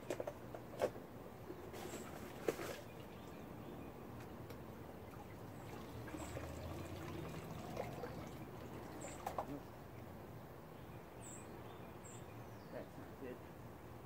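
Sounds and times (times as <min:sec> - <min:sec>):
creek water trickling: 0:01.7 - 0:10.2.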